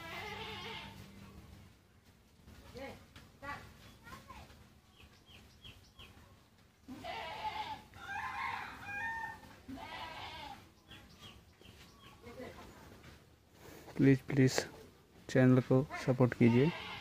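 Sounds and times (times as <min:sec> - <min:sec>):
farm animal drawn-out cries: 0:00.0 - 0:01.1, 0:06.9 - 0:10.7, 0:16.4 - 0:17.0.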